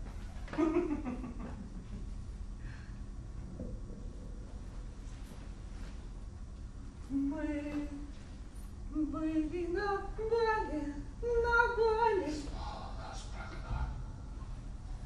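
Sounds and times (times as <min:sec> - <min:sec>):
faint low hum: 0:00.0 - 0:15.0
woman singing slow melody: 0:07.0 - 0:08.2, 0:08.9 - 0:12.5.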